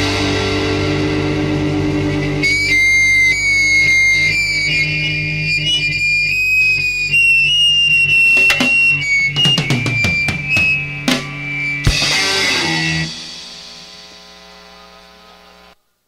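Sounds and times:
sliding lead guitar line: 0.0s - 13.4s
electric guitar chord ringing: 0.0s - 15.8s.

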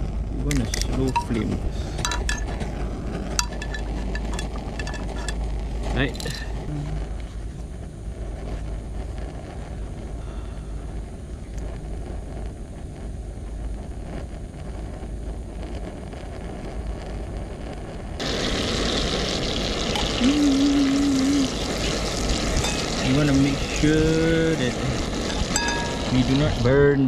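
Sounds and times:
gas stove rumble: 0.0s - 27.0s
butter sizzling in pan: 1.0s - 6.5s, 18.2s - 26.8s.

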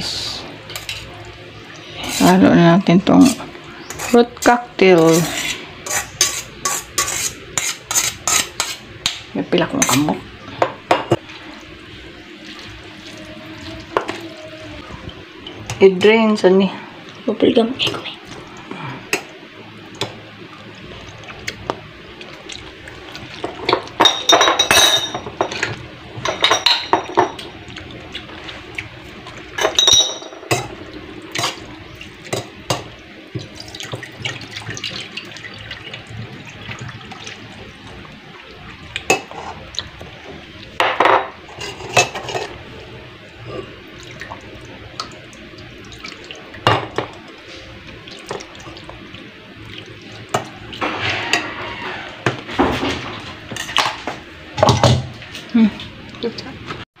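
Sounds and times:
metal spoon scraping a colander: 5.0s - 8.8s, 50.8s - 52.2s
liquid dripping: 43.9s - 50.8s.

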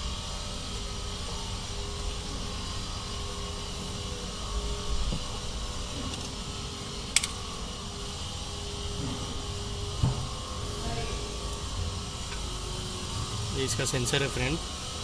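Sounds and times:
steady mechanical hum: 0.0s - 15.0s.

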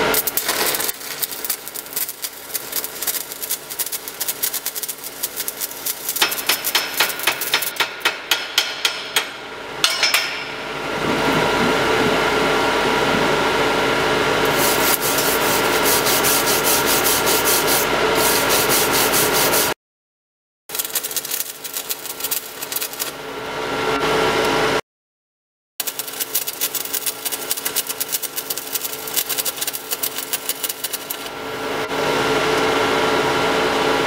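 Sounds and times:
welding arc crackling: 0.0s - 8.0s, 14.5s - 19.8s, 20.7s - 23.2s, 25.8s - 31.4s
chipping hammer striking metal: 5.6s - 10.6s
wire brush scraping: 14.5s - 19.8s, 25.8s - 31.3s.

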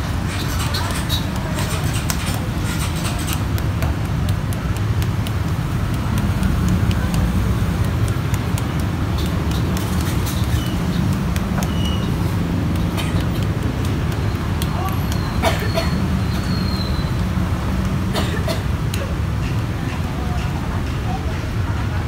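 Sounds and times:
low rumble of passing vehicles: 0.0s - 22.0s
light clicks and taps: 0.3s - 16.4s.

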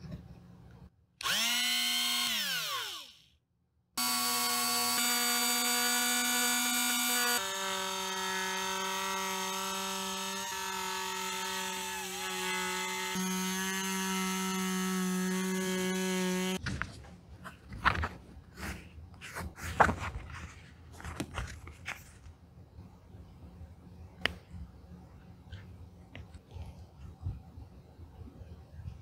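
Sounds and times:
rotary tool sanding whine: 1.2s - 3.2s, 4.0s - 16.6s.

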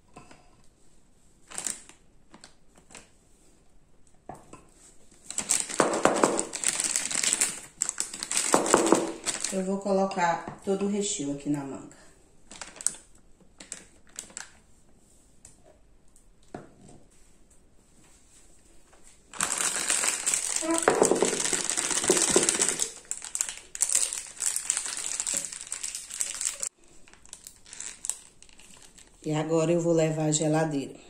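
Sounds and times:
plastic bag crinkling: 1.4s - 3.1s, 5.2s - 9.8s, 12.4s - 14.6s, 19.2s - 29.2s.

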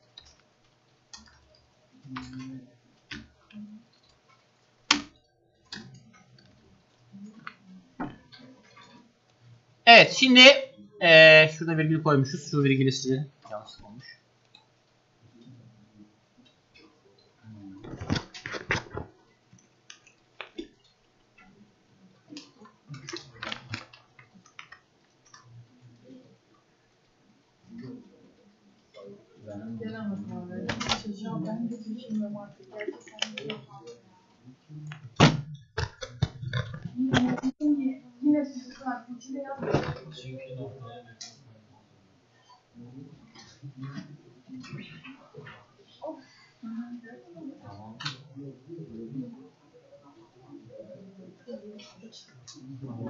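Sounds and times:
computer keys and mouse clicks: 0.0s - 8.9s, 22.4s - 26.1s, 32.7s - 33.7s.

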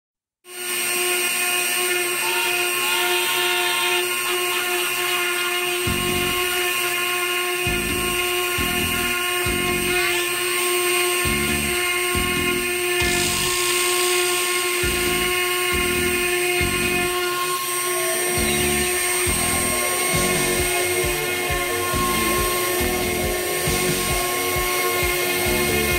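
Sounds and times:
router spindle high whine: 0.5s - 25.9s
low rumbling pulses: 5.9s - 6.5s, 7.7s - 10.0s, 11.3s - 13.7s, 14.8s - 17.2s, 18.3s - 25.9s.

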